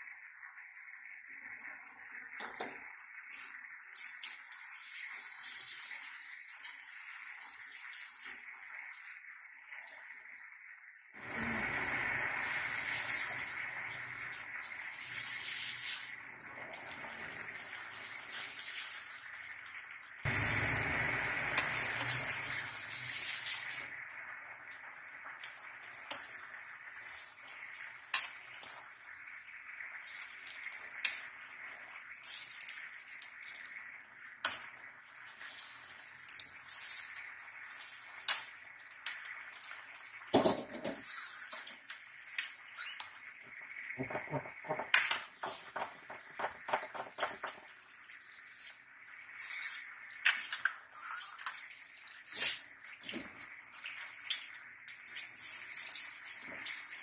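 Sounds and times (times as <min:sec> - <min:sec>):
simmering hiss: 0:11.2 - 0:19.4, 0:20.3 - 0:24.2.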